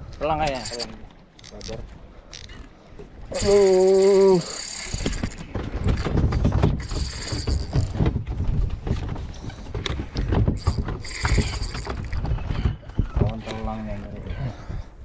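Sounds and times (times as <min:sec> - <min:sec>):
knocks and rattles: 0:00.3 - 0:01.8, 0:03.4 - 0:13.9.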